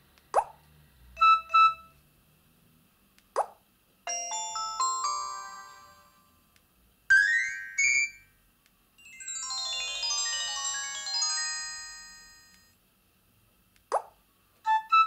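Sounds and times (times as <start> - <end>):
phone chiming tones: 4.1 - 6.3, 9.1 - 12.7.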